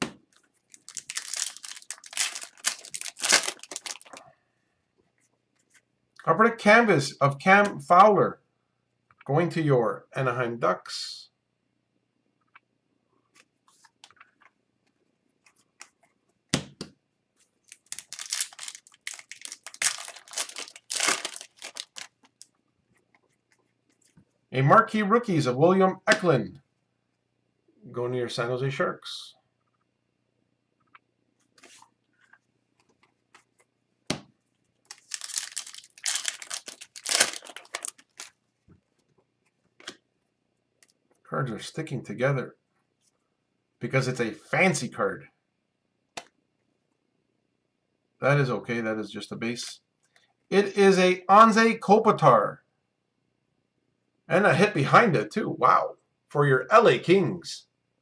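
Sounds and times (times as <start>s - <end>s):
cards clicking and rustling: 0.3s - 4.2s, 17.7s - 22.5s, 34.9s - 38.3s
foil wrapper crinkling: 0.4s - 4.2s, 17.6s - 22.5s, 34.8s - 38.4s.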